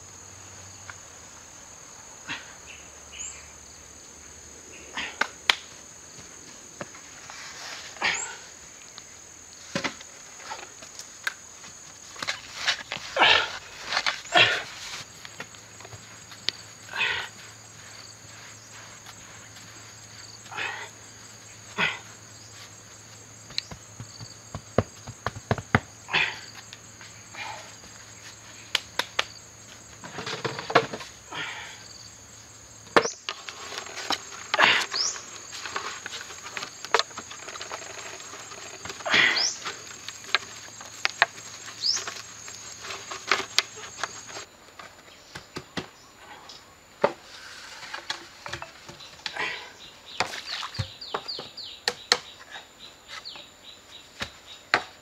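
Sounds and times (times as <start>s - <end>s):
hands scraping loose soil: 5.0s - 8.4s, 9.7s - 20.9s, 32.9s - 44.5s, 47.3s - 48.6s.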